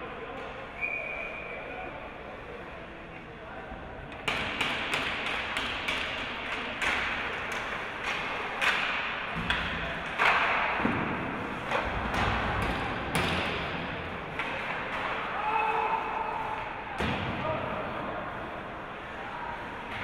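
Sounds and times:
hockey sticks and puck clacking: 0:04.1 - 0:17.5, 0:19.7 - 0:20.0.

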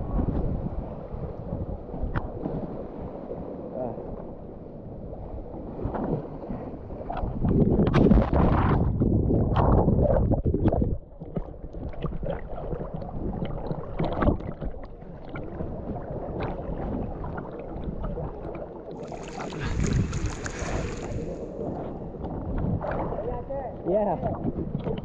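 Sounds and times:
seawater sloshing and splashing: 0:05.2 - 0:25.0.

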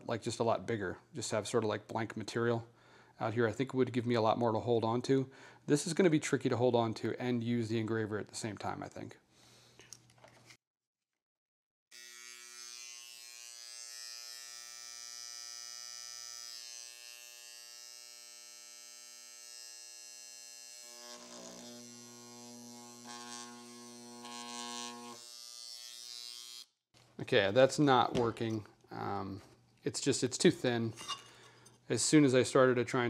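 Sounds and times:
electric engraver buzzing: 0:11.9 - 0:26.7.

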